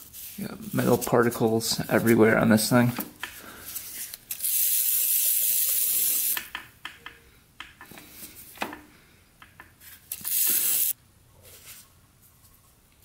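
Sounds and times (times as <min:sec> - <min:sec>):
aerosol spray hissing: 0:04.6 - 0:06.4, 0:10.2 - 0:11.0.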